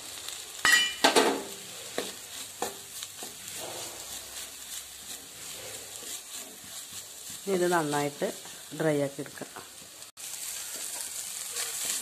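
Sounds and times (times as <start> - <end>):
low sizzle: 0.0 - 12.0
wooden spatula scraping pan: 1.5 - 10.0, 10.6 - 12.0.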